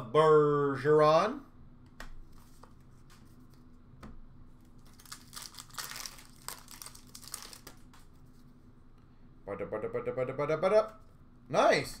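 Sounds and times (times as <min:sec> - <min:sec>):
wrapper tearing and crinkling: 0:04.8 - 0:07.8.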